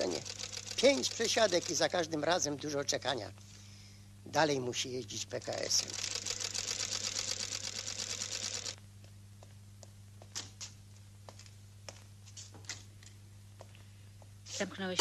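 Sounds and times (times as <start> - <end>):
sewing machine clattering: 0.0 - 2.0.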